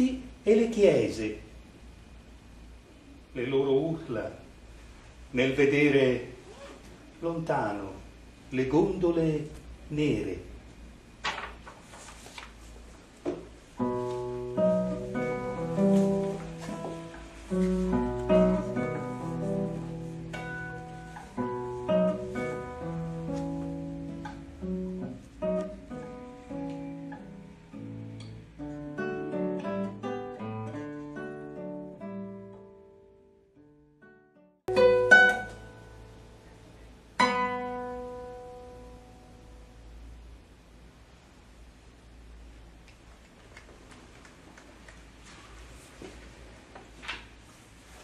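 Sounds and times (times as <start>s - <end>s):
acoustic guitar plucking: 13.8s - 33.3s, 34.0s - 40.0s.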